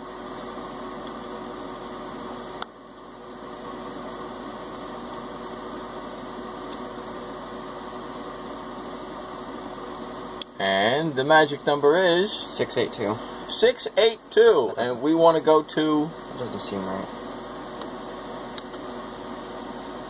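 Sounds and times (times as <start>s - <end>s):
machine hum: 0.0s - 20.0s.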